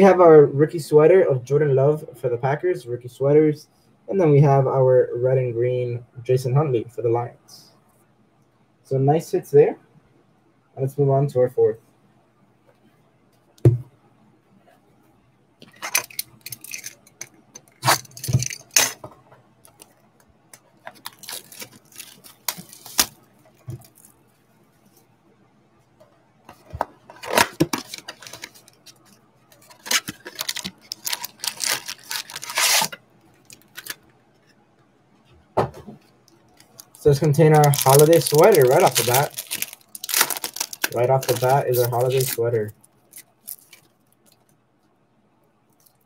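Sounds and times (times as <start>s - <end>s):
packaging torn and crinkled: 20.9s - 23.2s, 29.6s - 34.0s, 36.6s - 44.5s
foil pack ripping: 21.0s - 23.2s, 29.6s - 34.0s, 36.7s - 43.8s.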